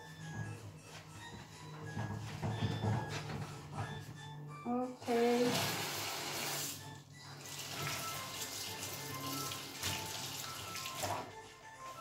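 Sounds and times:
soft background music: 0.0 - 12.0
tap water running into sink: 5.1 - 6.8, 7.4 - 11.3
sponge rinsing: 7.4 - 11.4.

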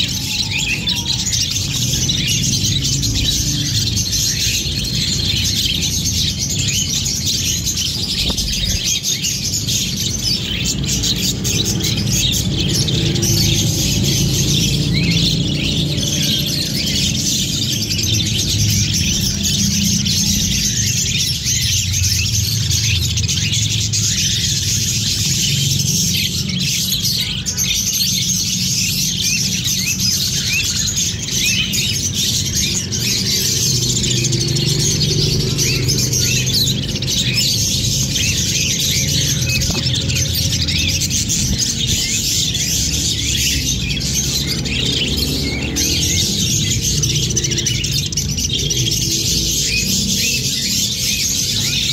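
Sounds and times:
budgerigars chirping and chattering: 0.0 - 51.9.

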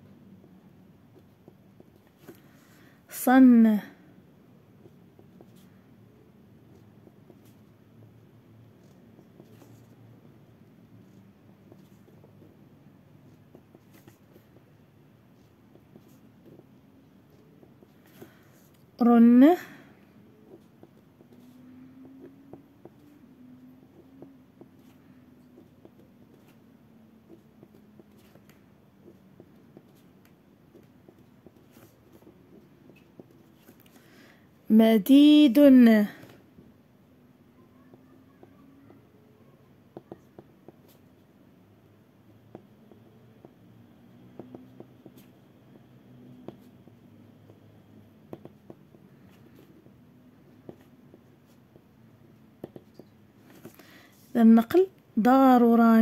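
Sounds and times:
low steady background noise: 0.0 - 56.0
pen scratching on paper: 4.8 - 18.9, 20.1 - 34.0, 39.9 - 41.3, 42.2 - 54.4
pen tip tapping on paper: 48.3 - 48.9.

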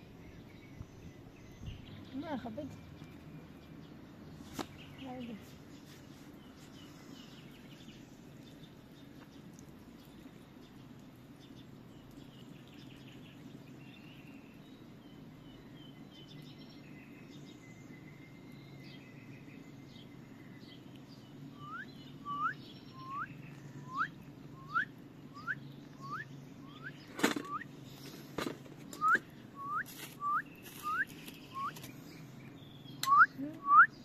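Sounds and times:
birds chirping: 0.0 - 34.0
bird whistling rising note: 21.6 - 27.7, 29.0 - 31.8.

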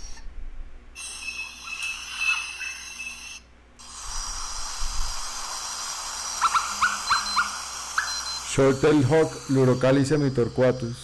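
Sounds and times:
night insects shrilling: 1.2 - 11.0
bird calling rising notes: 6.3 - 8.6.

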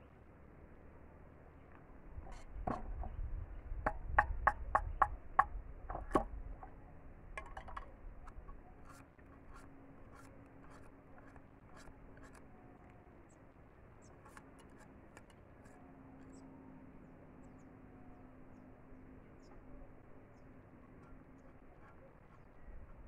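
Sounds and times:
scraping bamboo: 7.4 - 12.7, 14.0 - 16.4.

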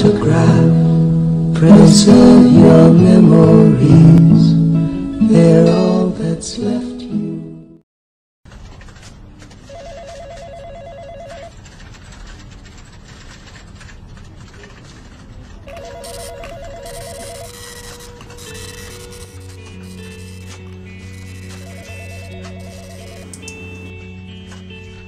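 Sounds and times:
telephone ringing with warbling trill: 9.7 - 11.5, 15.7 - 23.9.

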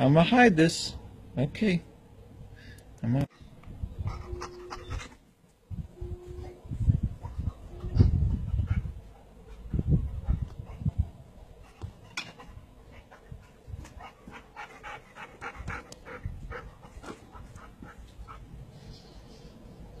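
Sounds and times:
dog panting: 7.2 - 18.7.

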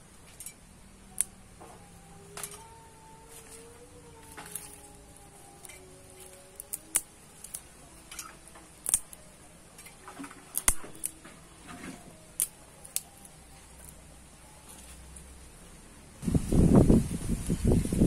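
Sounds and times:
dry twigs snapping: 2.2 - 11.2, 12.2 - 15.4.

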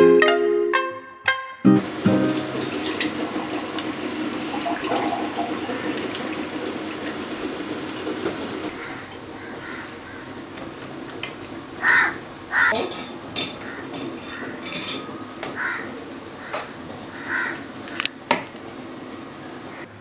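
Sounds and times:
juice gushing into a glass: 3.2 - 7.3.

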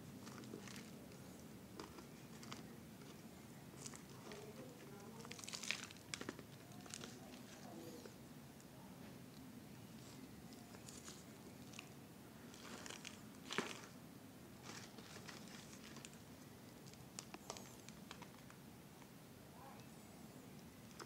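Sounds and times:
plant cuttings rustling: 0.1 - 7.8, 10.0 - 14.0, 14.6 - 18.6
plastic bottle crinkling: 0.2 - 1.0, 5.1 - 7.5, 12.5 - 14.0, 14.6 - 16.2.

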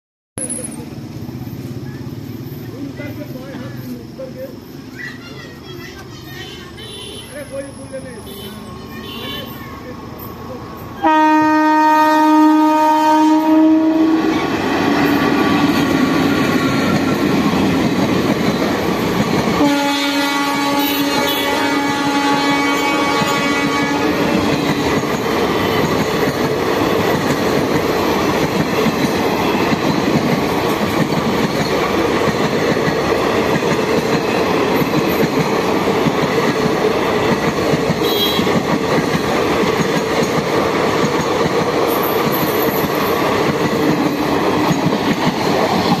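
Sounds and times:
train wheels rumbling and rattling: 10.3 - 46.0.

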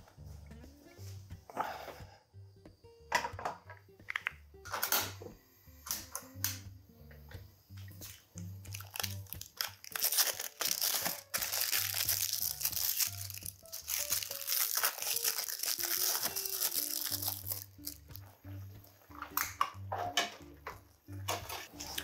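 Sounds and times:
background music: 0.0 - 22.0
plastic wrapper crinkling: 8.0 - 18.3.

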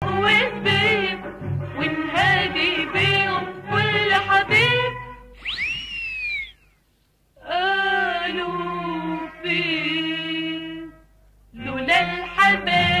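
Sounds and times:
background music: 0.0 - 5.4, 11.6 - 13.0.

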